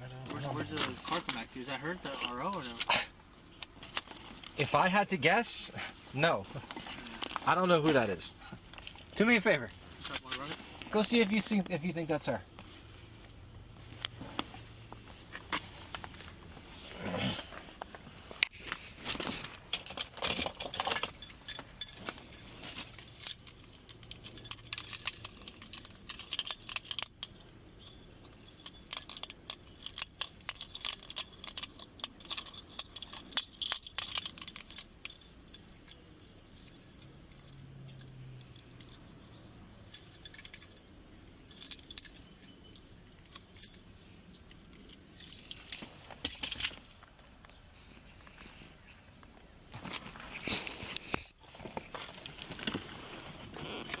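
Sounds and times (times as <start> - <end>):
keys jingling on belt: 19.8 - 45.8.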